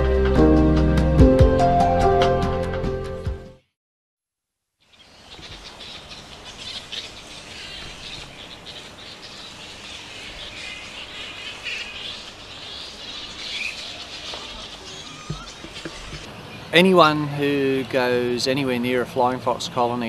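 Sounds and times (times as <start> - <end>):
bats squawking and screeching: 4.9 - 16.8.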